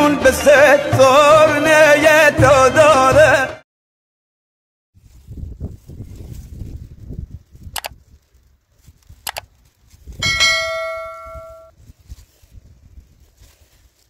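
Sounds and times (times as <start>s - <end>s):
sharp mouse clicks: 7.7s - 8.0s, 9.2s - 9.5s
notification bell chime: 10.2s - 11.7s.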